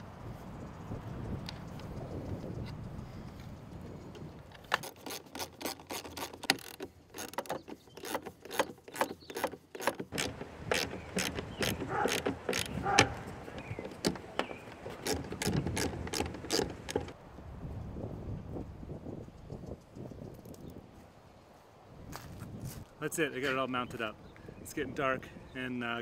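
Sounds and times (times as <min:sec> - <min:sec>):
clamps clicking and clacking: 0:04.6 - 0:17.2
short squeaks: 0:04.6 - 0:17.2.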